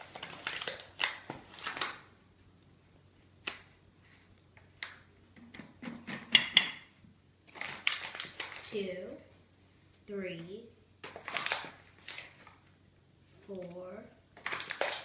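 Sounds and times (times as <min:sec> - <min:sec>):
paper filter rustling: 0:11.0 - 0:12.7.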